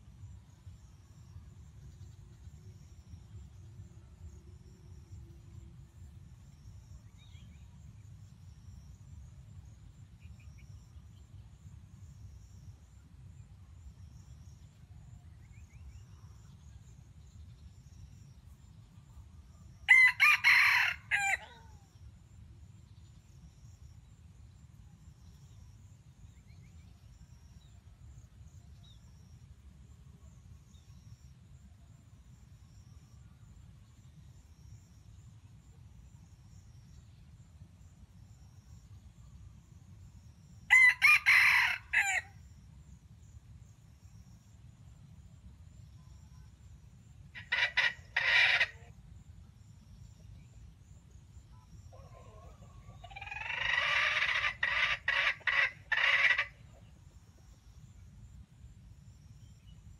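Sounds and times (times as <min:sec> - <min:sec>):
rooster crowing: 0:19.9 - 0:21.9, 0:40.7 - 0:42.3.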